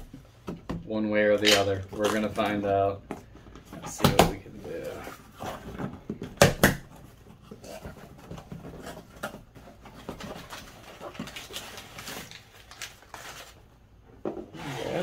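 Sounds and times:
packing tape slit and pulled: 1.4s - 2.3s
cardboard rustling and scraping: 3.3s - 13.6s, 14.5s - 15.0s.

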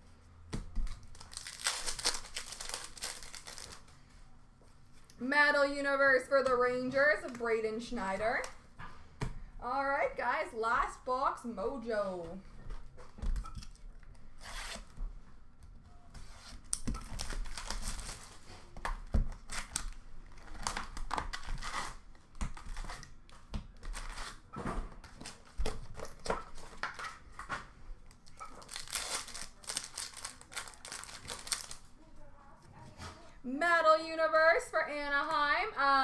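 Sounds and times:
card wrappers tearing and crinkling: 0.9s - 3.9s, 17.0s - 18.4s, 28.2s - 31.9s.

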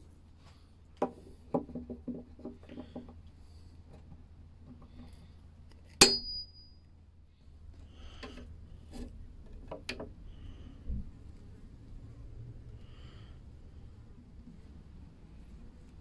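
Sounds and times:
sharp metallic clink: 6.0s - 6.8s.

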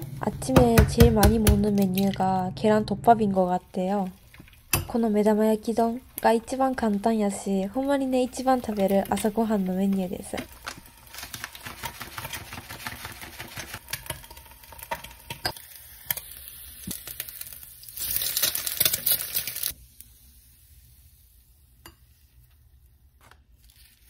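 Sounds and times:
egg sizzling in frying pan: 3.8s - 22.6s
plastic packet crinkling: 8.7s - 14.1s, 17.0s - 19.8s.

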